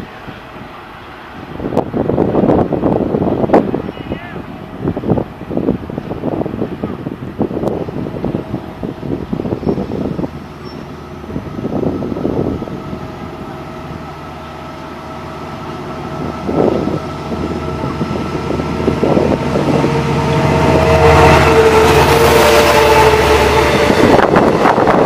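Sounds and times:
diesel locomotive engine drone: 0.0 - 25.0
wind buffeting microphone: 0.0 - 25.0.

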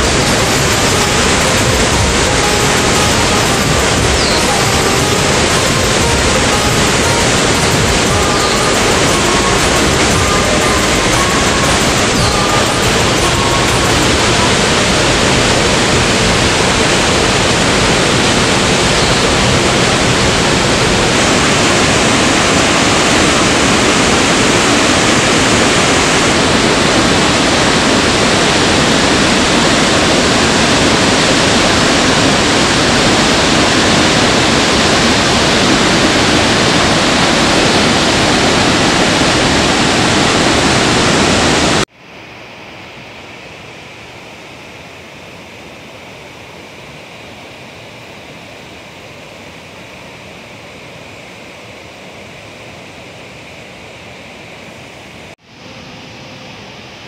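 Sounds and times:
waterfall rushing: 0.0 - 41.9.

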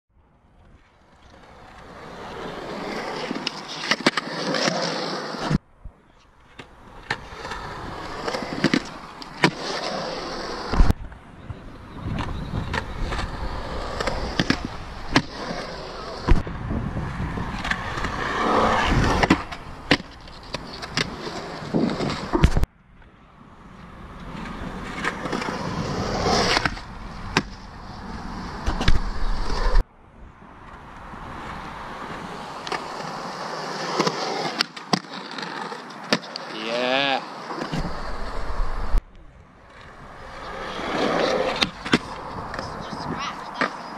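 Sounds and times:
skateboard wheels rolling on concrete: 0.1 - 43.9
skateboard clacking on concrete: 39.8 - 43.9.

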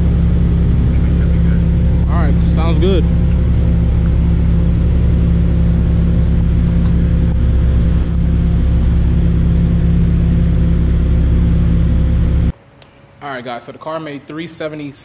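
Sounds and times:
low mechanical drone: 0.0 - 13.2.

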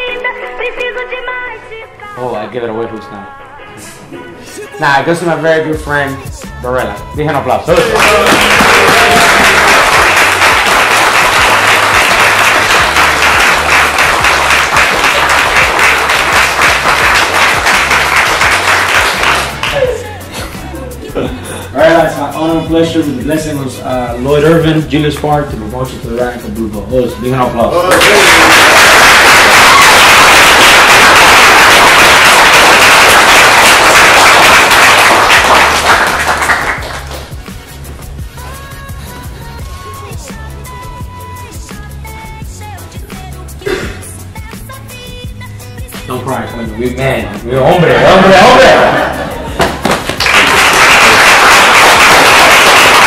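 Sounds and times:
group of people applauding: 7.7 - 20.2, 27.8 - 37.7, 47.8 - 53.0.

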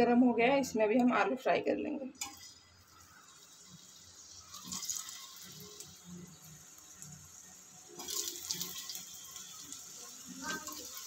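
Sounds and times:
potatoes sizzling in hot oil: 2.2 - 11.0.

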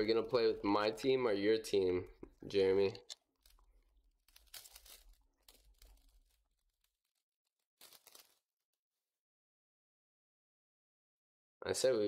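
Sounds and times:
foil wrapper crinkling and tearing: 3.2 - 8.7.

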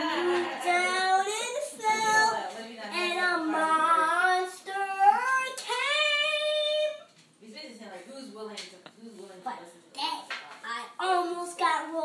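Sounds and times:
child singing: 0.2 - 7.1.

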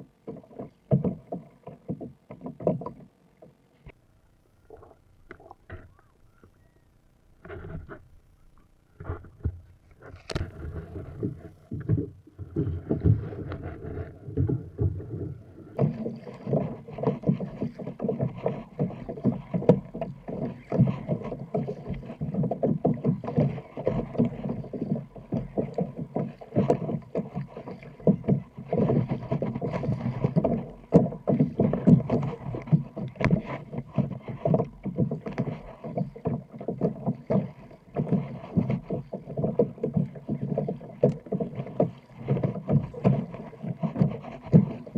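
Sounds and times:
paddle splashes: 9.0 - 44.9
water slapping against hull: 9.0 - 44.9.

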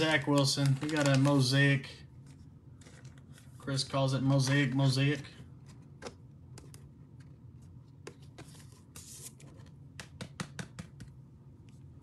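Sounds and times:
cards rustling: 0.0 - 3.7.

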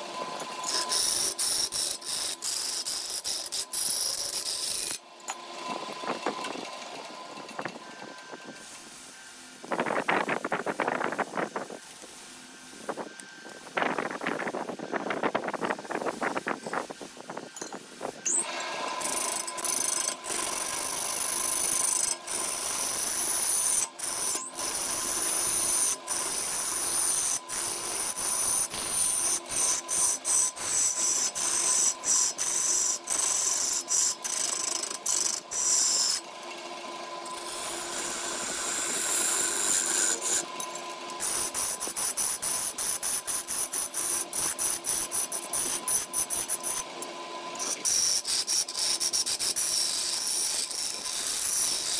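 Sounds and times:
lathe gouge scraping wood: 18.3 - 36.3, 37.0 - 51.9.

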